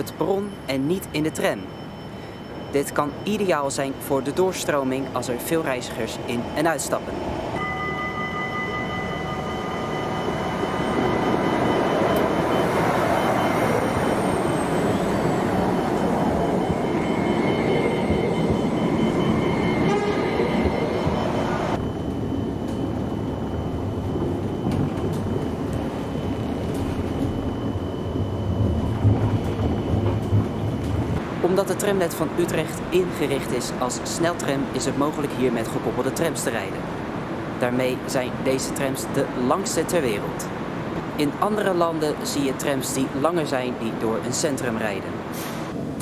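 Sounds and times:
tram rumbling past: 5.0s - 46.0s.

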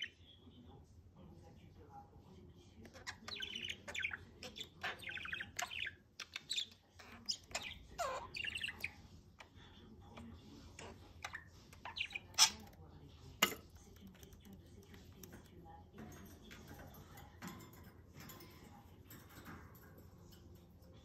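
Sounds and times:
budgerigar chirping and warbling: 2.9s - 9.0s, 10.8s - 12.8s.

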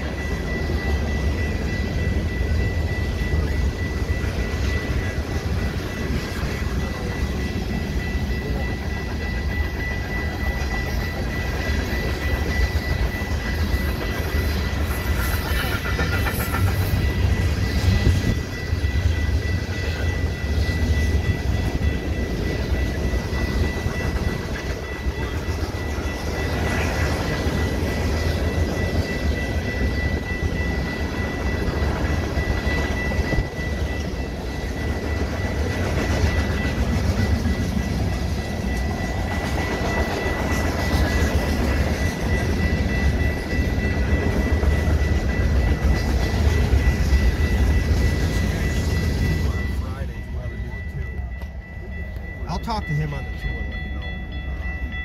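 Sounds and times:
train wheels rumbling on rail: 0.0s - 55.0s
thin high tone: 42.2s - 55.0s.

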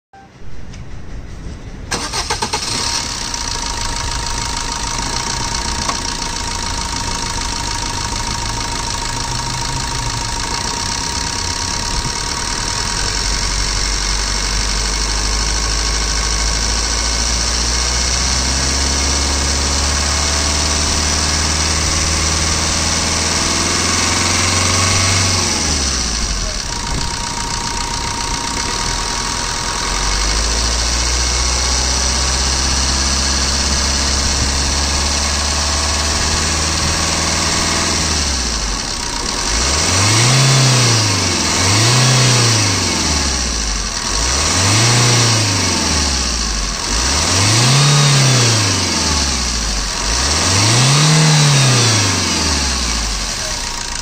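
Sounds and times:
diesel car engine starting and revving: 1.8s - 54.0s.

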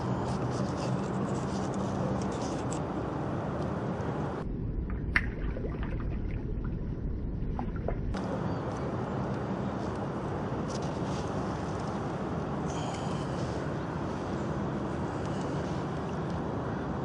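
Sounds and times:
waterside background noise: 0.0s - 17.0s
low rumble: 4.4s - 8.4s.

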